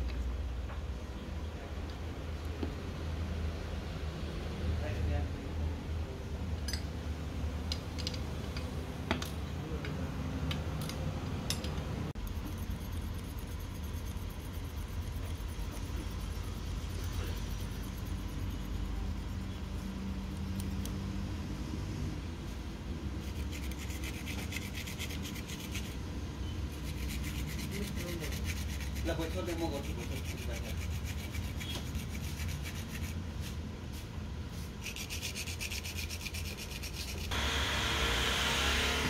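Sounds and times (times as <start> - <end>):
low steady hum: 5.4 - 37.4
rubbing and scraping strokes: 12.2 - 19.9, 23.2 - 37.4.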